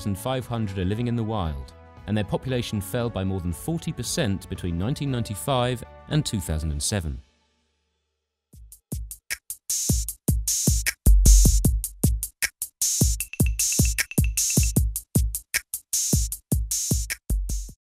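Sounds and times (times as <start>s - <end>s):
electronic music with drum-machine beat: 8.6s - 17.8s.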